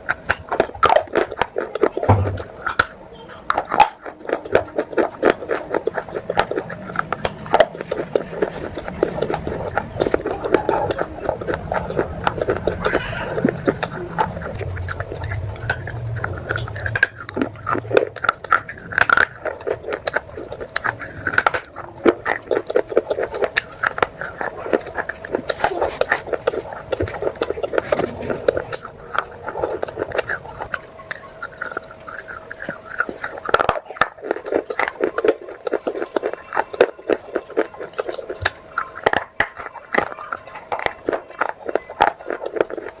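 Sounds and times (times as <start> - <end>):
wet crunching chewing: 0.0 - 43.0.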